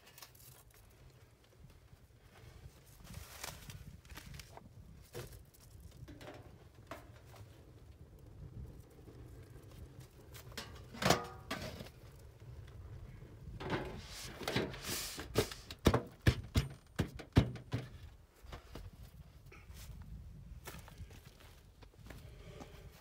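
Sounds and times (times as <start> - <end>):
metal knocks and clatter: 6.0 - 7.4, 10.5 - 11.9, 13.6 - 18.7
metal lid clanging: 10.6 - 11.8.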